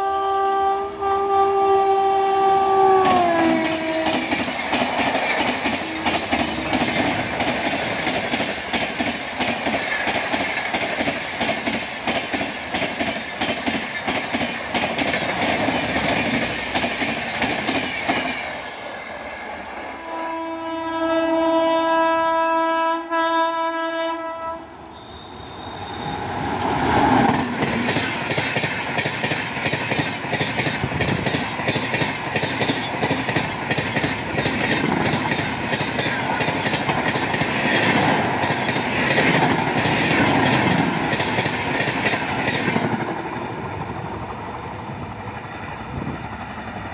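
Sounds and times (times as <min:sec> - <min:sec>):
locomotive horn blast: 0:00.0 - 0:04.3, 0:20.0 - 0:26.3
train wheels clattering over rails: 0:03.0 - 0:19.8, 0:26.2 - 0:46.9.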